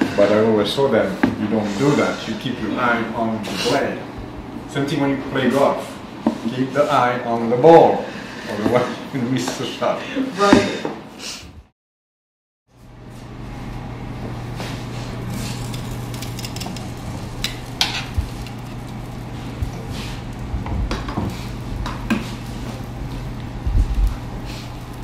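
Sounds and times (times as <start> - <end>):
steady low hum: 12.7 - 25.0.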